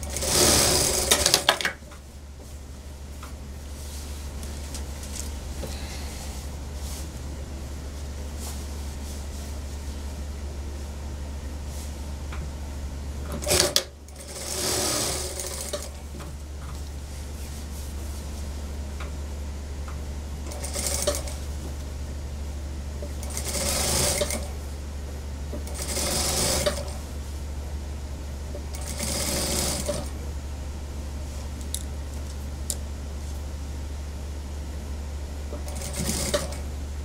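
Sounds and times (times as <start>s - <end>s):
sewing machine stitching: 0.0s - 1.7s, 13.3s - 16.0s, 20.5s - 21.4s, 23.1s - 24.5s, 25.6s - 27.0s, 28.7s - 30.1s, 35.6s - 36.6s
steady low hum: 0.0s - 37.0s.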